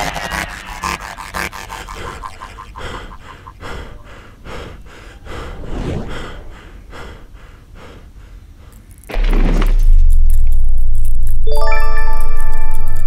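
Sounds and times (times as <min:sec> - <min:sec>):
rapid heavy breathing: 0:00.0 - 0:09.1.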